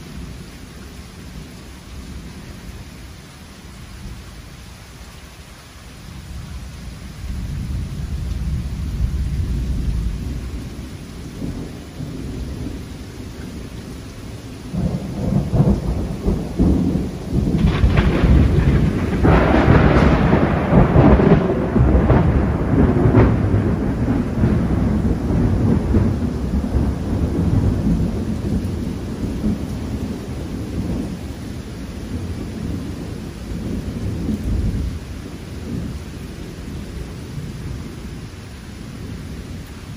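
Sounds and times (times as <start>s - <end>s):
steady rain: 0.0s - 39.9s
thunder rolling: 7.3s - 31.3s.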